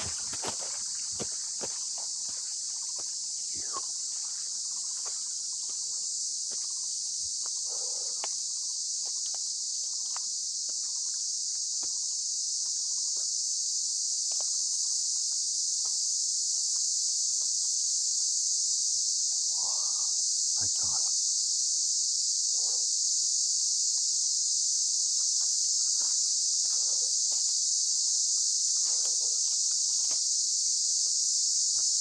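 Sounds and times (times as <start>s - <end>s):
footsteps on dry leaves: 0.0s - 2.6s
high-pitched insect chorus: 0.0s - 32.0s.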